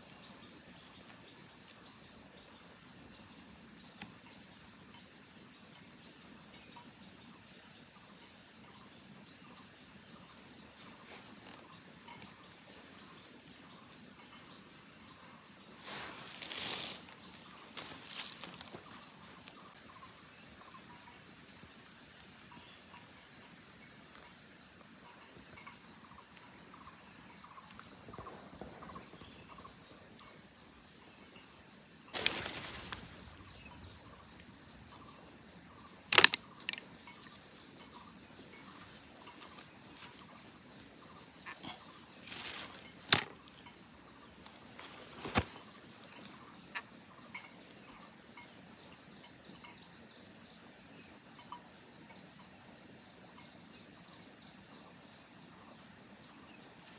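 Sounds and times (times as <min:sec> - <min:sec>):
insect chorus: 0:00.0 - 0:56.9
bamboo trap clicking: 0:36.1 - 0:36.8, 0:43.1 - 0:43.3.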